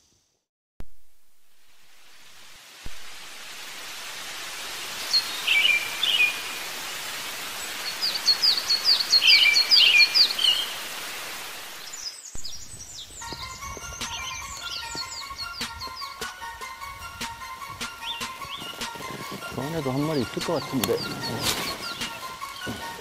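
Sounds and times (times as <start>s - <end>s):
outdoor wind: 0.8s - 23.0s
bird chirping: 5.0s - 10.8s, 11.8s - 23.0s.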